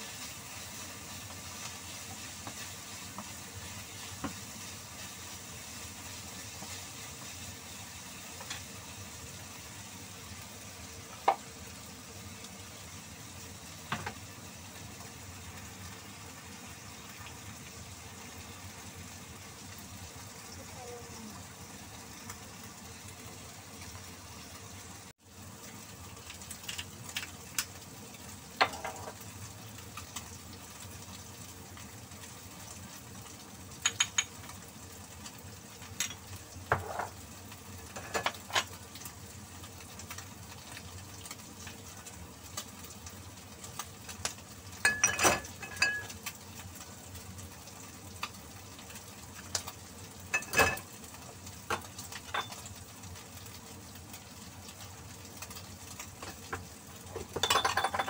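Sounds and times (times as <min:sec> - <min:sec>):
meat sizzling in pan: 0:00.0 - 0:58.0
kitchenware clinking: 0:28.6 - 0:29.2, 0:33.8 - 0:34.3, 0:36.0 - 0:37.2, 0:37.9 - 0:38.8, 0:44.8 - 0:46.1, 0:50.3 - 0:50.9, 0:52.3 - 0:52.7, 0:57.1 - 0:58.0.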